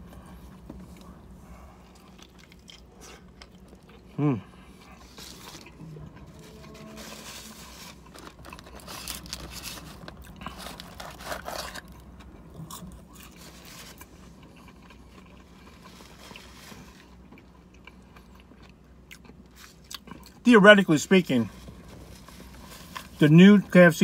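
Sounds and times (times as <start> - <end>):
chewing and crunching: 0.0 - 20.5
paper carton rustling and scraping: 6.3 - 11.9.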